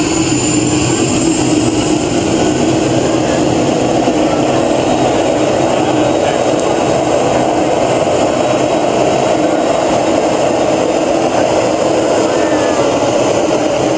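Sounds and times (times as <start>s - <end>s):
gas turbine engine roaring: 0.0s - 13.9s
high thin turbine whine: 0.0s - 13.9s.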